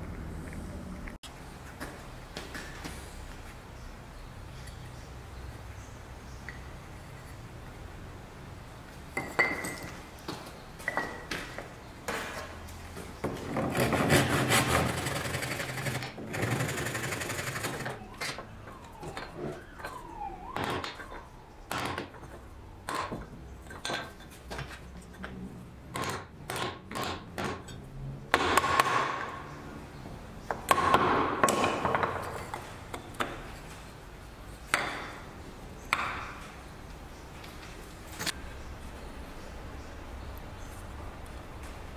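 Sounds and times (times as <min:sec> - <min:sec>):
chisel scraping wood: 0:13.5 - 0:17.8.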